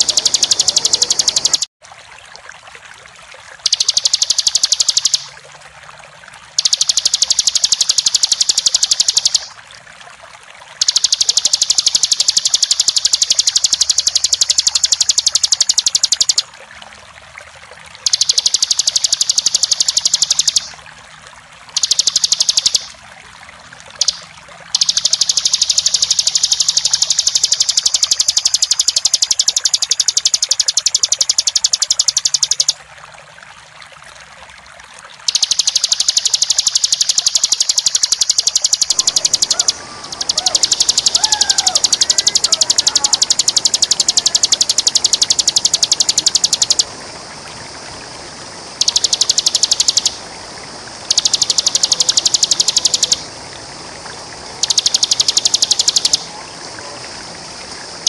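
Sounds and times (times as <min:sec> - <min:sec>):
bird singing high trills: 0:00.0 - 0:01.7, 0:03.7 - 0:05.3, 0:06.6 - 0:09.5, 0:10.8 - 0:16.5, 0:18.1 - 0:20.8, 0:21.8 - 0:23.0, 0:24.8 - 0:32.8, 0:35.3 - 0:46.9, 0:48.8 - 0:50.2, 0:51.1 - 0:53.3, 0:54.6 - 0:56.3
flowing water: 0:00.0 - 0:58.0.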